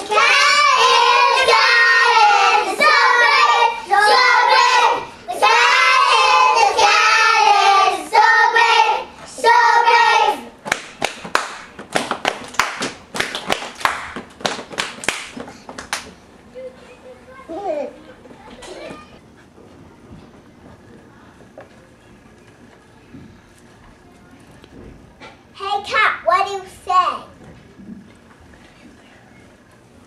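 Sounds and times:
young children singing: 0:00.0 - 0:10.6
hand claps: 0:10.6 - 0:16.2.

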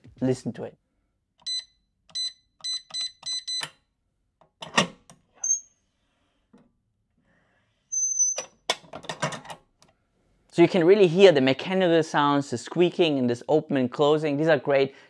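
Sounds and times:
keypad beeps: 0:01.4 - 0:03.8
safe door squeaking: 0:05.4 - 0:05.7, 0:07.9 - 0:08.6.

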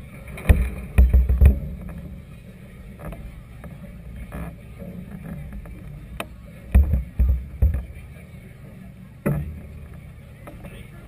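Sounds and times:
heavy low thumps: 0:06.7 - 0:08.0.

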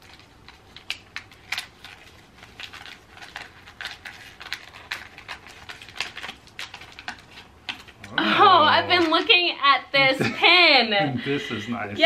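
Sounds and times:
wrapping crinkling and rustling: 0:00.0 - 0:09.5.

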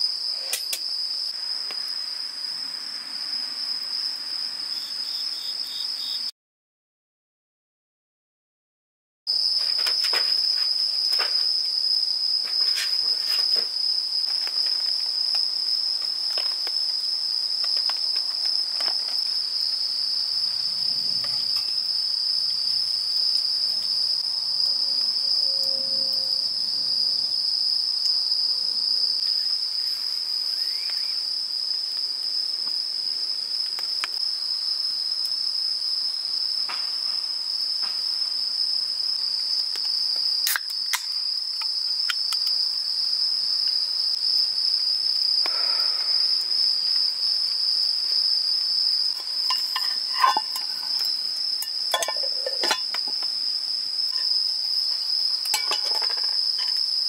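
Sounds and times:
crickets chirring: 0:00.0 - 0:06.3, 0:09.3 - 0:57.0
campfire crackling: 0:12.5 - 0:19.8, 0:49.1 - 0:53.5.

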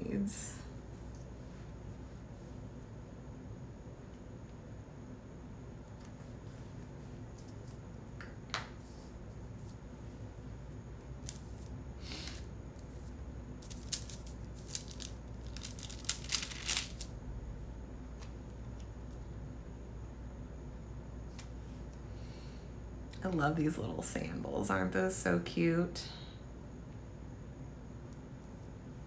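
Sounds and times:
low steady hum: 0:00.0 - 0:29.0
paper rustling: 0:12.3 - 0:17.1
stickers peeling and clicking: 0:13.6 - 0:17.1.

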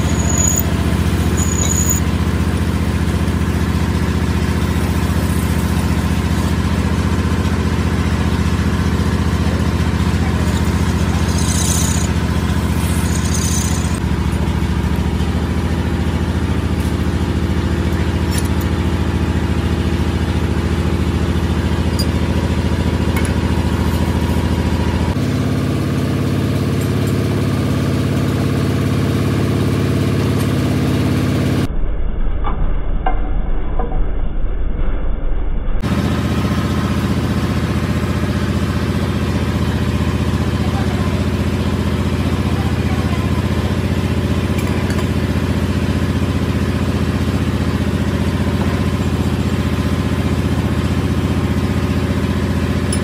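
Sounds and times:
cutting tool scraping steel: 0:00.0 - 0:02.1, 0:10.3 - 0:14.0
wrenches clinking on metal: 0:00.0 - 0:02.1, 0:10.4 - 0:14.0
metal lathe motor hum: 0:00.0 - 0:15.0.

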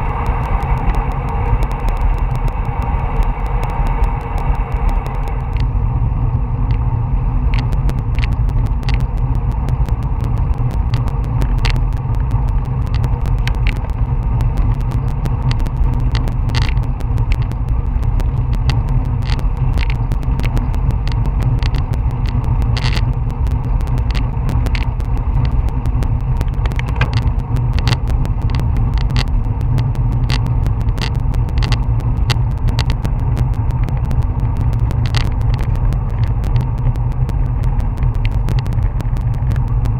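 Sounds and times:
sharp clicks and rattles: 0:00.0 - 0:05.8, 0:06.6 - 0:39.9
wind rumbling over microphone: 0:00.0 - 0:39.9.

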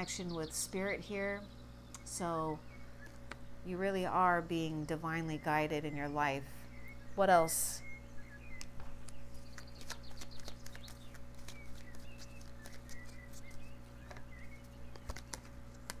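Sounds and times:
steady low hum: 0:00.0 - 0:16.0
cards being handled and drawn: 0:09.0 - 0:14.3, 0:14.9 - 0:16.0.

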